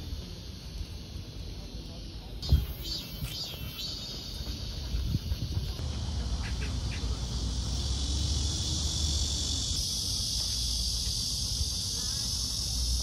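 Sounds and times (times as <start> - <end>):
high-pitched insect drone: 2.4 - 13.0.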